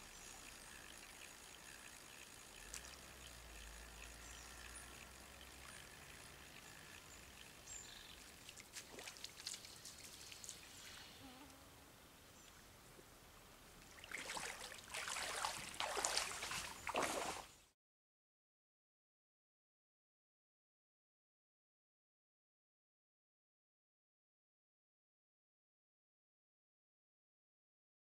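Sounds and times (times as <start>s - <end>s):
faint outdoor ambience: 0.0s - 17.7s
water sloshing and splashing: 8.2s - 10.9s, 13.8s - 17.6s.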